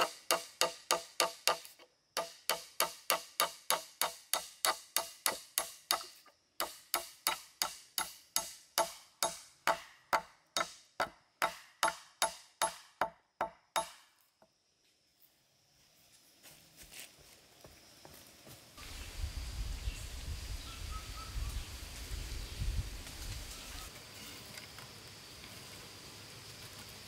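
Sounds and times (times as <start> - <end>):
hammer striking nail into wood: 0.0 - 14.1.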